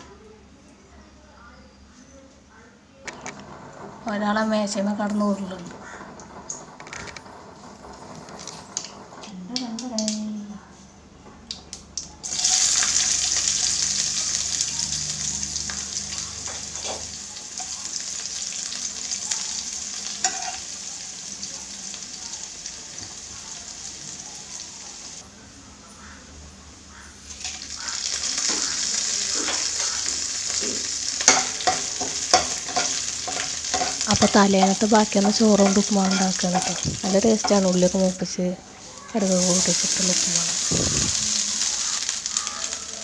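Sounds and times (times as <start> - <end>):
onions sizzling in hot oil: 12.2 - 25.2, 26.9 - 43.0
spoon stirring: 20.2 - 20.6, 29.4 - 34.4, 35.1 - 37.9.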